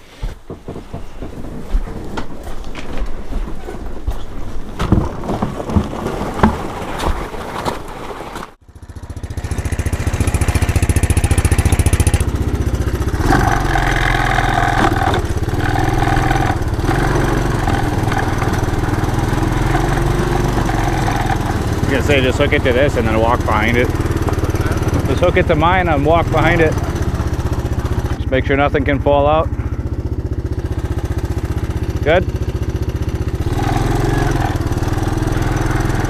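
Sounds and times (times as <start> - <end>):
gear knocking and rattling: 0.4 - 36.0
atv engine running: 8.6 - 36.0.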